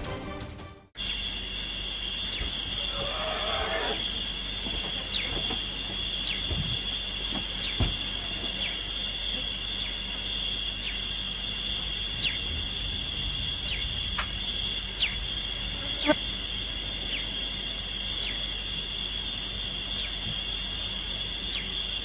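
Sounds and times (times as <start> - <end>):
high-pitched insect drone: 1.0 - 22.0
low thump: 7.8 - 8.1.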